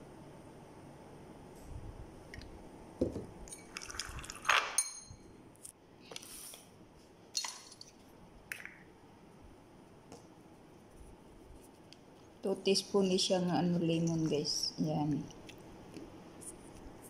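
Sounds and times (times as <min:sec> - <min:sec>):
metal spoon clinking in bowl: 0:04.8 - 0:05.2.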